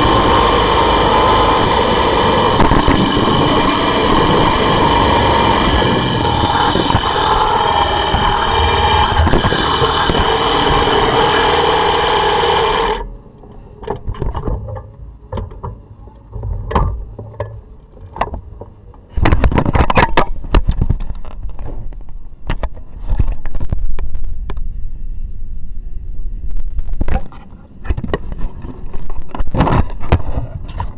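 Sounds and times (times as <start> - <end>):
motorcycle engine running: 0.0 - 13.1.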